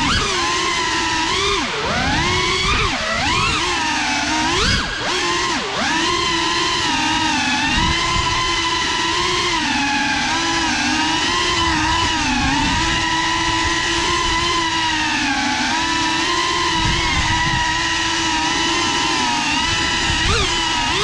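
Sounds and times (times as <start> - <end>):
drone motors whining: 0.0 - 21.0.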